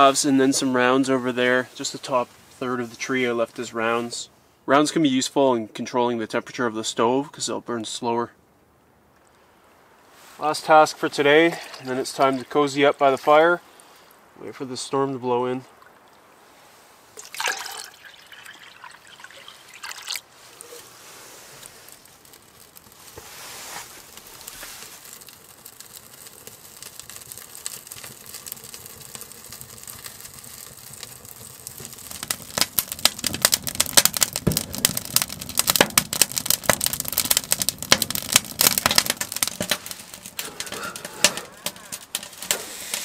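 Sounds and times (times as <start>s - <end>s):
firewood crackling in stove: 0.0s - 8.0s, 9.2s - 43.0s
water trickling in creek: 10.7s - 14.2s, 15.7s - 16.4s, 17.1s - 40.7s.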